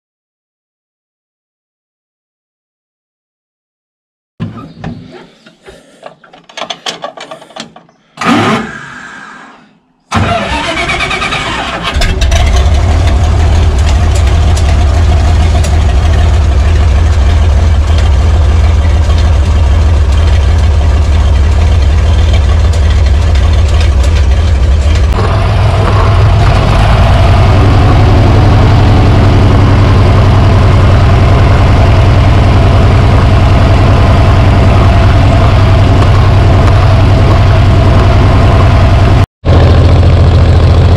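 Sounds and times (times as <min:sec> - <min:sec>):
tractor engine cranking and running: 0:04.4 - 0:08.8, 0:10.1 - 0:40.9
starter clicks: 0:04.8 - 0:08.7.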